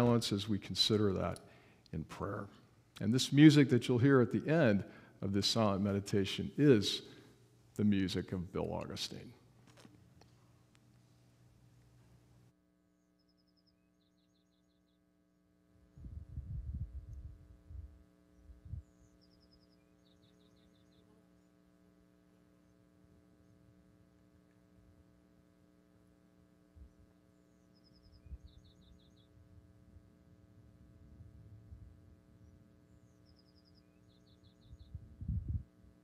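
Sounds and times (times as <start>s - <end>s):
faint electrical hum: 0.0s - 36.0s
small bird singing: 13.1s - 15.1s, 18.3s - 21.6s, 26.8s - 29.4s, 32.4s - 35.5s.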